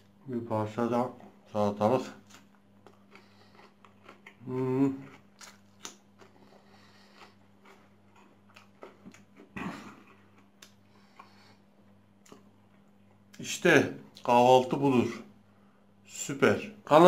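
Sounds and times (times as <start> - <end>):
person humming: 4.4 - 5.1.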